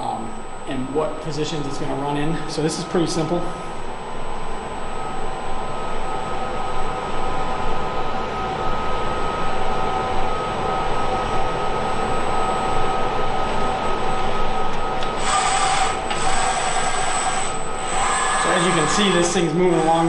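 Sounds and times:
machine hum: 0.0s - 20.0s
steady whining tones: 0.0s - 20.0s.

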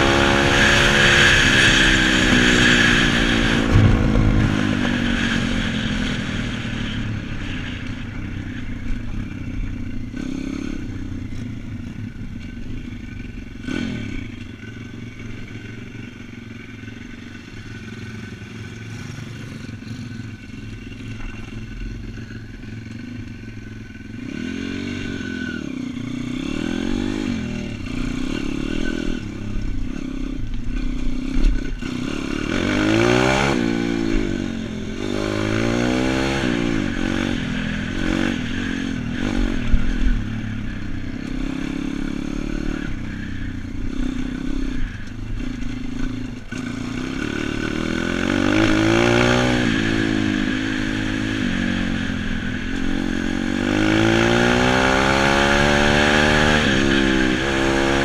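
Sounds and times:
motorbike engine revving: 0.0s - 58.0s.

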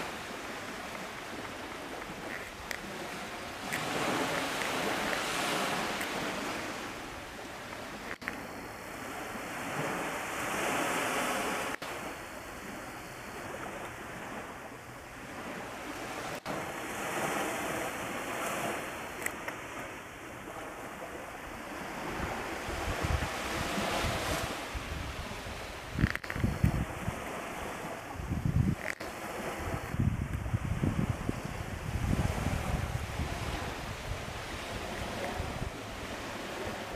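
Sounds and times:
waves washing onto beach: 0.0s - 36.9s
wind buffeting microphone: 15.2s - 36.9s.

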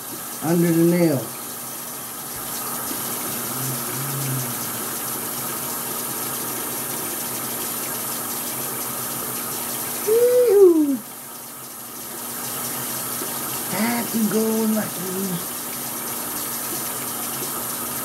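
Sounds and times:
sink tap running: 0.0s - 18.0s
person humming: 3.3s - 5.0s, 10.0s - 11.0s.

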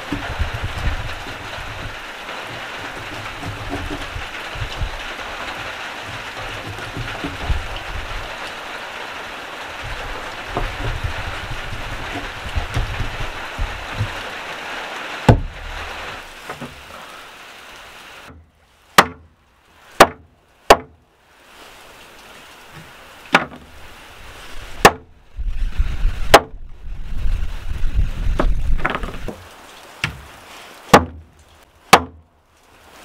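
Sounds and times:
steady hiss: 0.0s - 33.0s
hatchet chopping ribs on wooden board: 19.0s - 19.2s, 20.0s - 20.9s, 30.9s - 31.2s.

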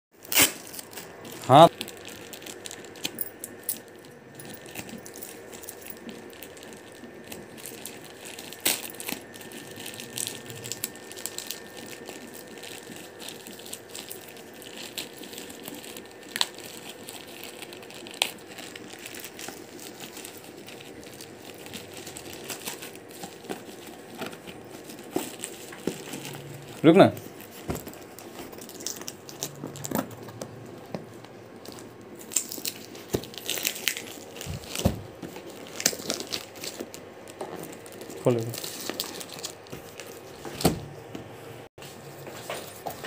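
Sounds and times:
plastic bag rustling: 0.2s - 40.8s
plastic crackling and snapping: 31.6s - 40.8s.

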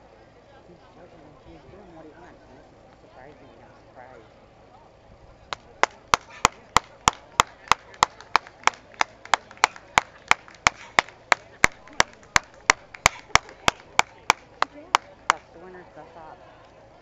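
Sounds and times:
person clapping: 5.5s - 15.4s.

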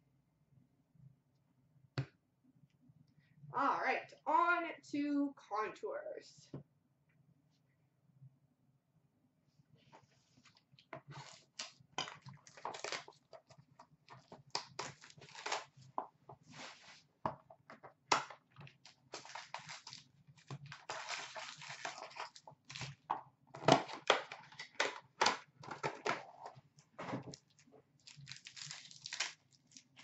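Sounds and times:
cardboard and foil crinkling tearing: 11.1s - 13.5s, 14.1s - 15.9s, 18.8s - 23.1s, 27.3s - 30.0s.

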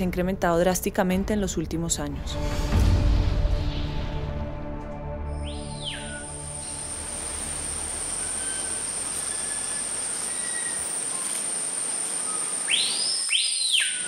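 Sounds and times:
low background music: 0.0s - 9.6s
insects droning: 5.7s - 14.0s
hiss: 6.6s - 13.3s.

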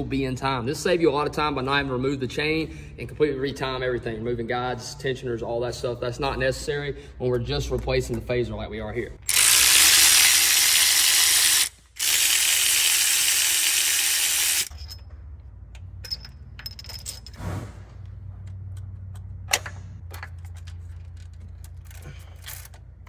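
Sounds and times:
cordless ratchet running: 9.2s - 14.7s
light metallic clicks and clinks: 14.7s - 17.4s.

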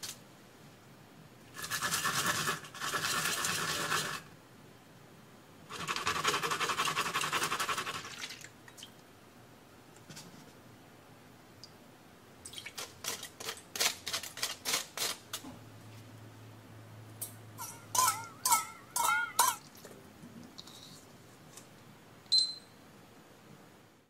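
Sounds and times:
metal spoon scraping a pan: 17.6s - 19.7s
kitchen timer beep: 22.3s - 22.8s.

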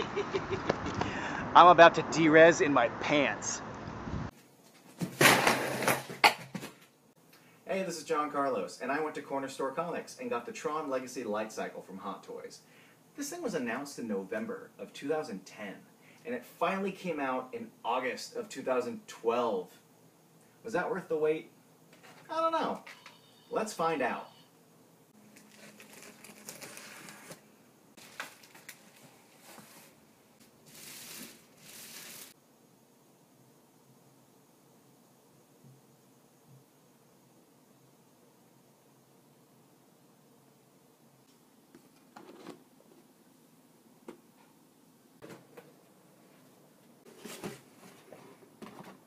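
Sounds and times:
plastic bag rustling: 25.2s - 32.4s
cardboard scraping: 25.4s - 30.0s, 47.0s - 49.0s
scrapes and rustles: 28.0s - 32.4s, 46.3s - 49.0s.

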